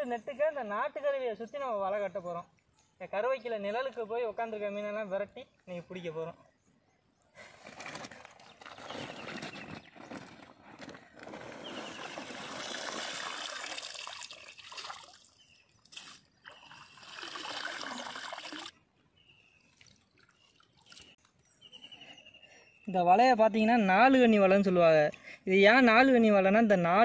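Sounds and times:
pond water sloshing and trickling: 0:07.5 - 0:10.3, 0:11.1 - 0:21.5.

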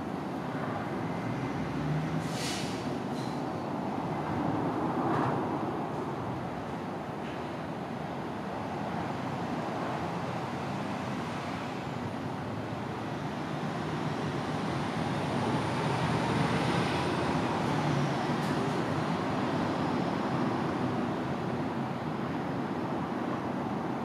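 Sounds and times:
road traffic noise: 0:00.0 - 0:24.0.

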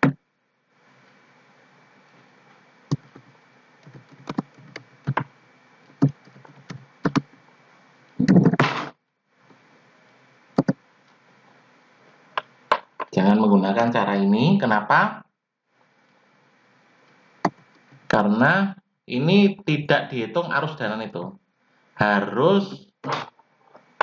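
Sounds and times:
keyboard keystrokes: 0:03.9 - 0:05.3, 0:06.0 - 0:07.2.

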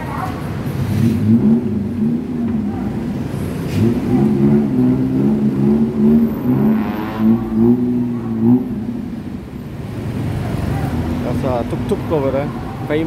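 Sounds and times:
city street traffic: 0:00.0 - 0:13.0
engines accelerating: 0:00.0 - 0:13.0
engine revving: 0:00.6 - 0:12.8.

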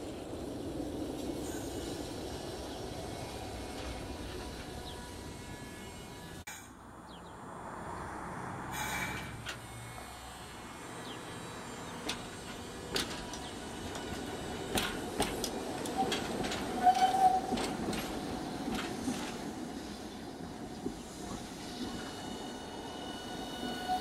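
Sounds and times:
streetcar wheels and motor rumbling: 0:00.0 - 0:24.0
wheels clacking on rails: 0:11.0 - 0:24.0.

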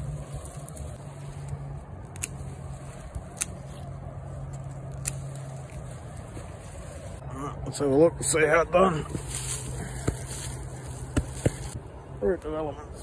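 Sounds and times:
pruning snips cutting stems: 0:00.0 - 0:07.2, 0:09.1 - 0:11.8.

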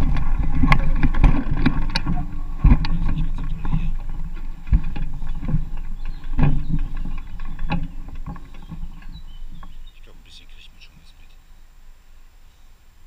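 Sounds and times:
knocks and thumps: 0:00.0 - 0:09.9
rumbling noise: 0:00.0 - 0:13.0.

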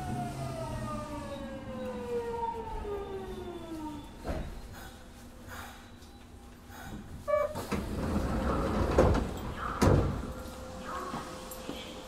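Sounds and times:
train doors sliding: 0:06.7 - 0:12.0.

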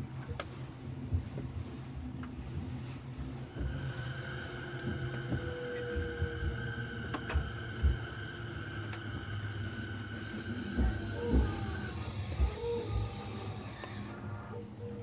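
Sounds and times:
train running rumble: 0:00.0 - 0:15.0
steady high whine: 0:02.9 - 0:14.9.

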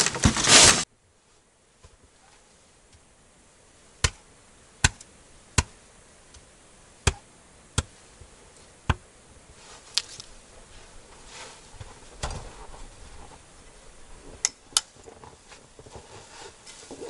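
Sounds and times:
axe chopping twigs: 0:04.0 - 0:05.8, 0:07.0 - 0:08.0.

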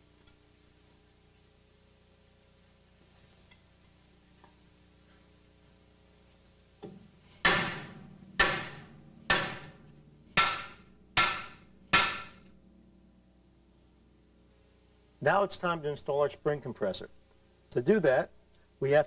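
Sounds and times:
hammer striking steel: 0:07.4 - 0:09.8, 0:10.4 - 0:12.5.

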